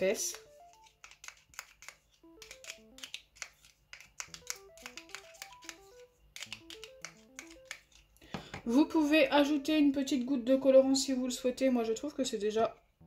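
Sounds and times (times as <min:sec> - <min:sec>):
finger snaps beat: 0:01.8 - 0:07.9.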